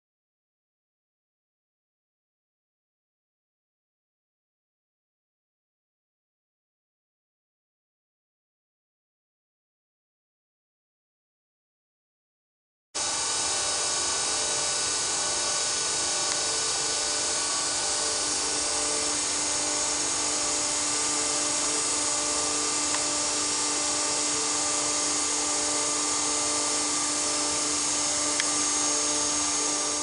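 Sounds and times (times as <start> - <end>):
grinder machine whine: 13.0 - 30.0.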